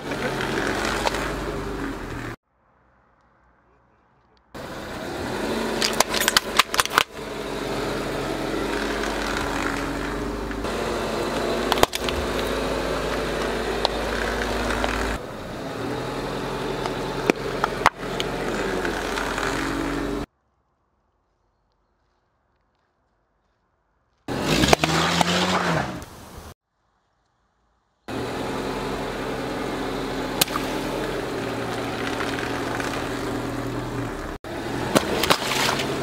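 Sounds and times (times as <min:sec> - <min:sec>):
car engine running slowly: 0:00.0 - 0:02.4, 0:04.6 - 0:20.3, 0:28.1 - 0:36.0
objects cracking under tyre: 0:00.2 - 0:01.5, 0:05.8 - 0:07.2, 0:08.6 - 0:10.6, 0:11.3 - 0:15.2, 0:16.8 - 0:20.0, 0:31.4 - 0:34.1, 0:34.9 - 0:36.0.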